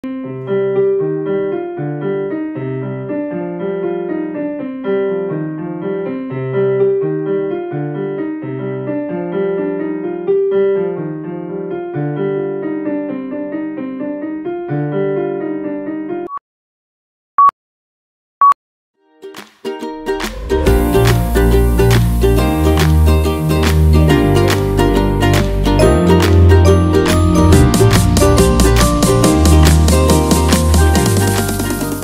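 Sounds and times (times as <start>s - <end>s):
electric piano tune with bass: 20.4s - 32.0s.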